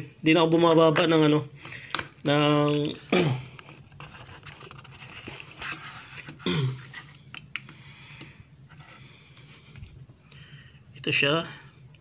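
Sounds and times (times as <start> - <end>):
person grunting: 6.4 - 6.8.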